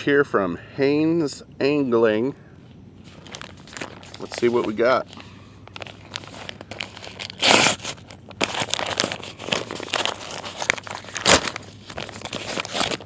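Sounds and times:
cardboard tearing and crinkling: 5.8s - 13.0s.

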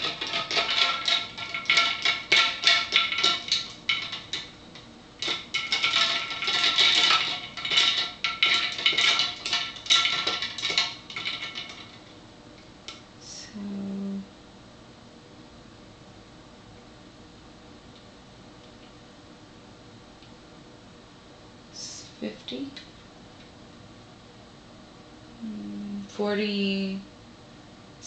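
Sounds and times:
ice cubes clinking in a cup: 0.0s - 4.6s, 5.2s - 12.0s.

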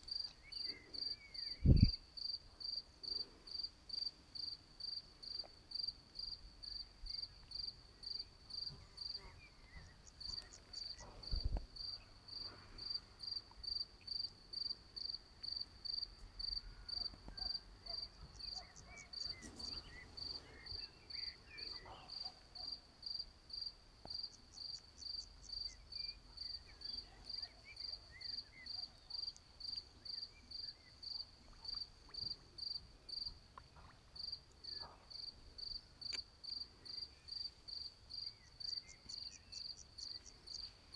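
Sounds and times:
cricket chirping: 0.0s - 40.9s.

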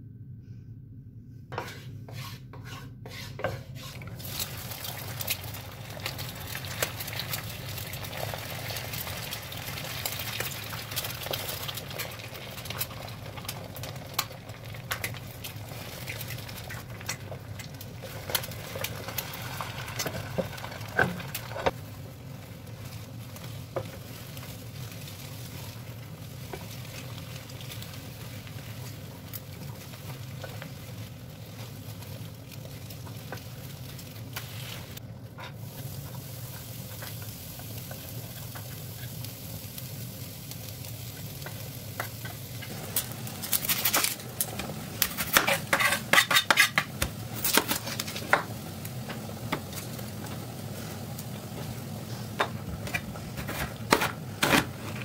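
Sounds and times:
low steady hum: 0.0s - 8.1s
wooden spatula scraping a pan: 1.5s - 4.2s, 45.2s - 48.4s
eggs sizzling in hot oil: 1.6s - 55.0s.

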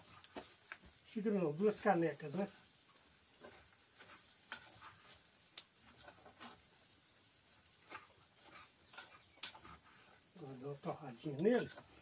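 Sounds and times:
rice sizzling in fat: 0.0s - 12.0s
spoon scraping a pan: 2.6s - 10.3s, 11.1s - 12.0s.

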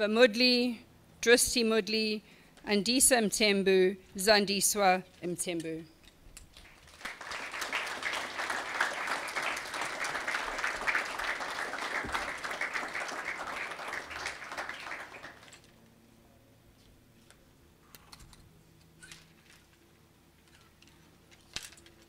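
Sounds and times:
audience applauding: 6.6s - 15.7s.

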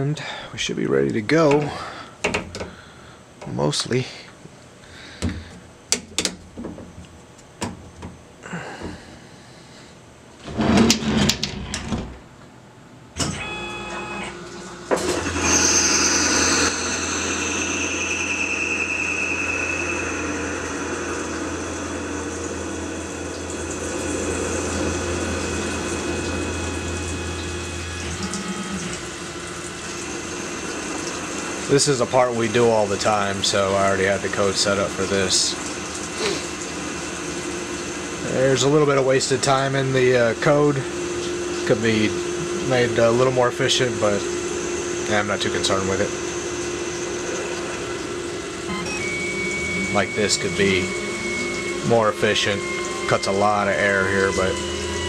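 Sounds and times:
lathe spindle hum: 13.5s - 55.0s
coolant rushing: 14.4s - 55.0s
high tones falling in pitch: 15.5s - 23.6s, 48.7s - 55.0s.

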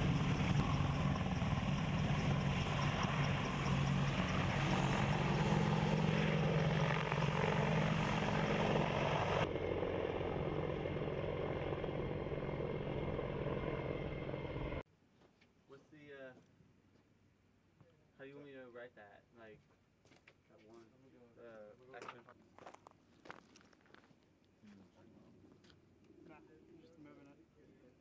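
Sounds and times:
helicopter flying past: 0.0s - 14.8s.

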